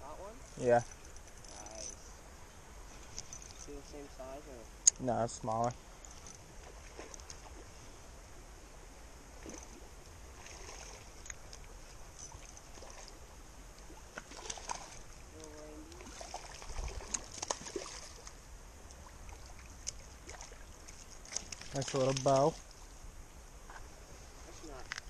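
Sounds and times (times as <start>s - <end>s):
creek water running: 0.0s - 25.0s
small splashes: 9.4s - 13.2s, 13.8s - 22.8s.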